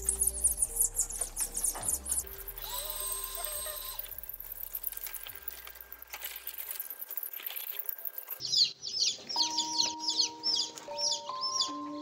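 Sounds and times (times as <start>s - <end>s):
chicks peeping: 0.0s - 5.3s, 8.3s - 12.0s
background music with held notes: 0.0s - 6.4s, 9.2s - 12.0s.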